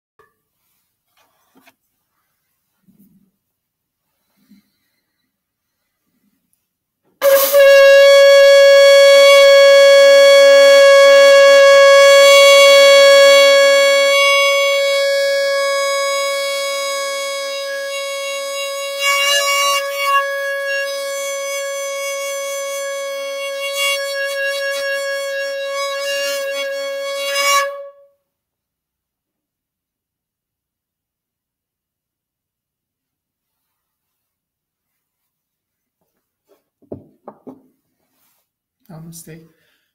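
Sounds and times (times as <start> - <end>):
conch shell blown: 7.2 - 28.3.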